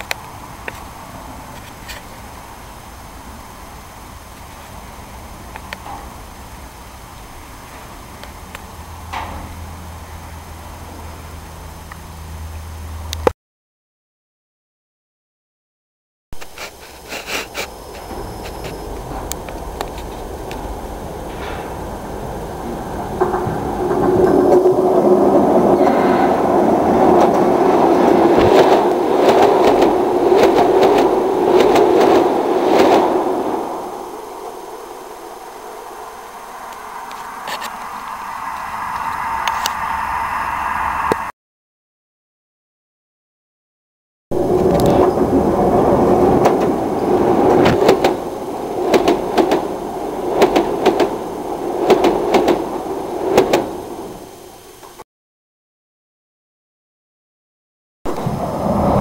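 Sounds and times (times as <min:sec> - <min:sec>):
wheels clacking over rail joints: 0:00.0 - 0:02.8, 0:03.4 - 0:11.4, 0:16.4 - 0:37.9, 0:44.4 - 0:55.0
train rumbling over bridge: 0:00.0 - 0:13.3, 0:16.5 - 0:41.3, 0:44.3 - 0:55.0, 0:58.1 - 0:59.0.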